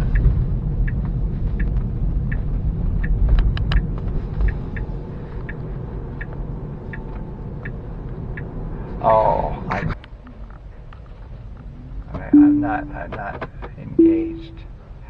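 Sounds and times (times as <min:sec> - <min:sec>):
turn signal ticking: 0:00.0 - 0:08.7, 0:12.4 - 0:13.2, 0:14.0 - 0:14.6
road and tyre rumble: 0:00.0 - 0:15.0.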